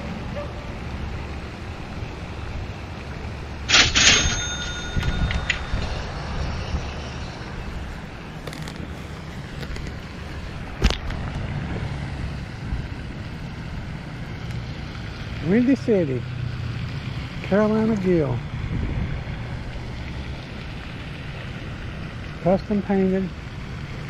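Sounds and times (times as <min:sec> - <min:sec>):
fishing reel burst with ringing tone: 0:03.7 - 0:06.3.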